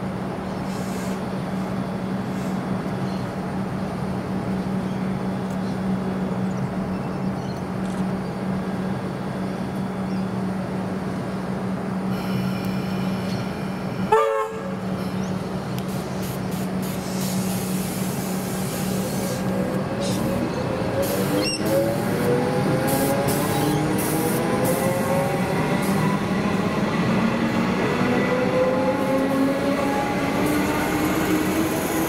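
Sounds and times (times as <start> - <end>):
train hum: 0.0 - 32.0
train horn toot: 14.1 - 14.9.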